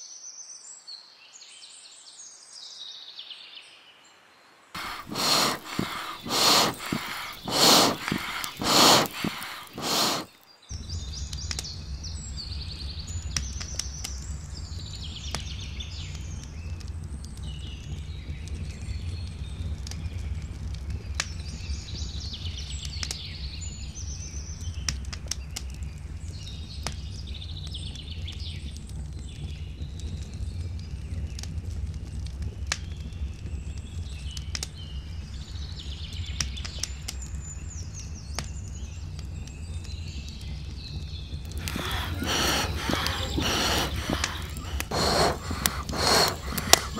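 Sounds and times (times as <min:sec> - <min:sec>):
loud rushing puffs: 0:04.8 - 0:10.3, 0:41.5 - 0:46.9
wood fire crackling: 0:04.8 - 0:10.3, 0:41.4 - 0:46.9
songbirds singing: 0:04.8 - 0:20.3, 0:33.8 - 0:46.9.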